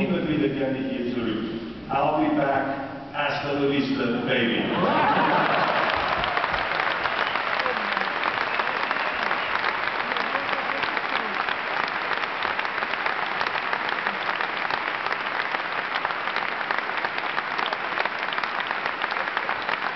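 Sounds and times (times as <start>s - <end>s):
large audience applauding: 4.7s - 19.9s.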